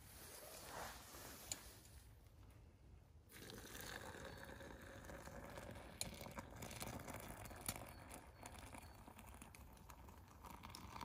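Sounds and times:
hot water pouring: 3.3s - 11.0s.

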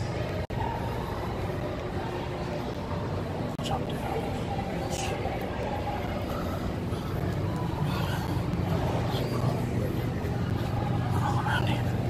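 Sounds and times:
low rumble of background noise: 0.0s - 12.0s.

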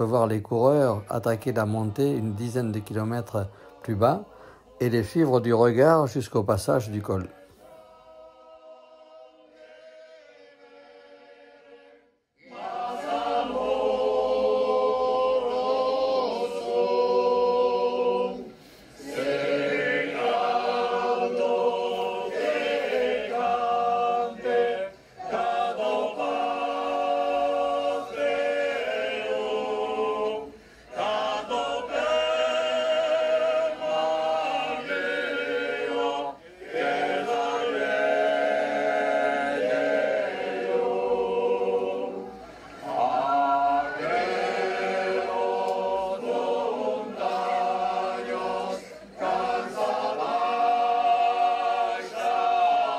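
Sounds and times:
a cappella choir singing: 0.0s - 5.9s, 6.9s - 52.9s.

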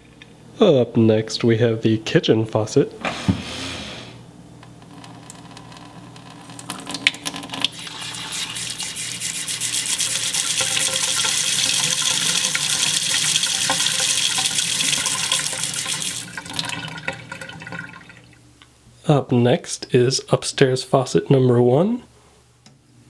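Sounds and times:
faucet water running into sink: 6.6s - 18.4s.

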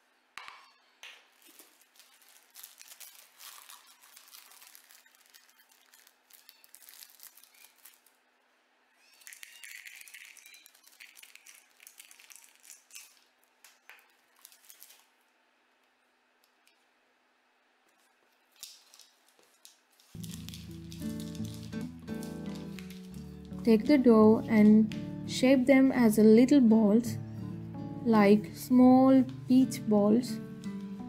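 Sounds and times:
plastic packets crinkling: 1.0s - 8.2s, 9.1s - 15.3s, 18.0s - 23.6s.

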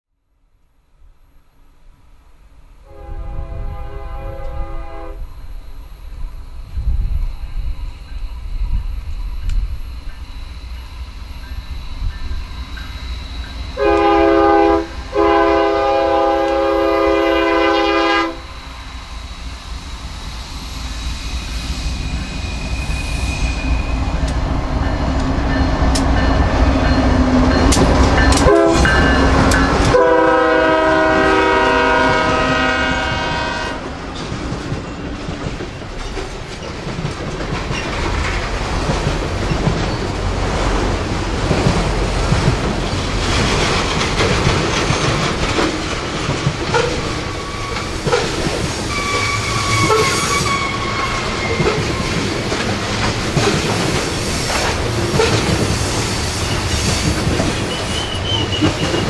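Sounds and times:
train rumbling on rails: 2.5s - 59.0s
locomotive air horn: 2.8s - 5.3s, 13.8s - 18.5s, 28.4s - 33.9s, 48.9s - 51.7s.

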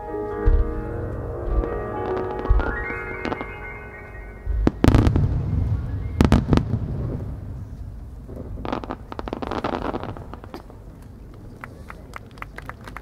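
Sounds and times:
crackling firework stars: 0.0s - 13.0s
firework shells booming: 4.4s - 10.9s.

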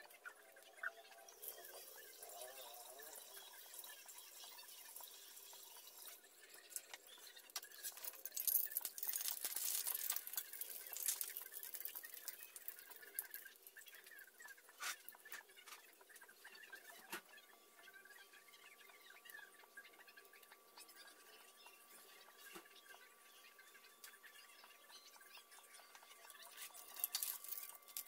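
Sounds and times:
spatula working in pan: 0.0s - 21.7s
fritter sizzling in hot oil: 1.1s - 7.1s.

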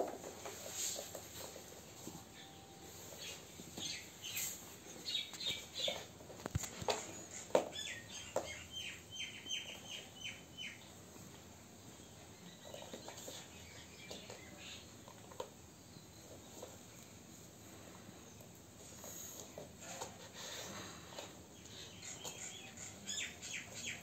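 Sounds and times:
cats pawing at a shoe: 3.1s - 8.7s, 12.4s - 15.6s, 16.2s - 22.6s.

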